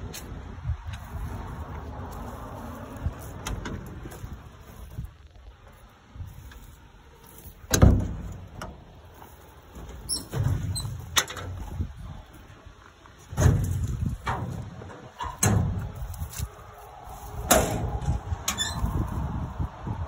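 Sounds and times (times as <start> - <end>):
low rumbling handling noise: 0.0 - 20.0
metal compartment doors clanking: 7.6 - 9.0, 9.8 - 12.0, 13.3 - 16.1, 17.5 - 19.0.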